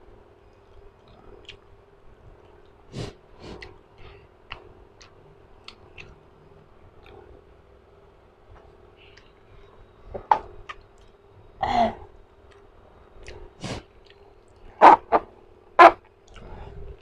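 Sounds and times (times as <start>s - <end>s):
lip smacks and mouth clicks: 1.0s - 1.8s, 3.5s - 3.8s, 4.4s - 6.2s, 12.5s - 14.7s
person sniffing: 2.9s - 3.7s, 13.6s - 13.9s.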